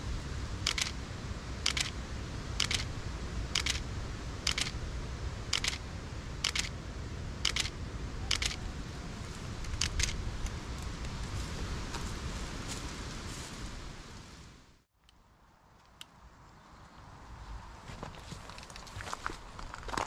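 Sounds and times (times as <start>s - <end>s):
camera shutter clicking: 0.7s - 1.0s, 1.7s - 2.0s, 2.6s - 2.9s, 3.6s - 3.8s, 4.5s - 4.8s, 5.5s - 5.8s, 6.4s - 6.7s, 7.4s - 8.6s, 9.7s - 10.2s.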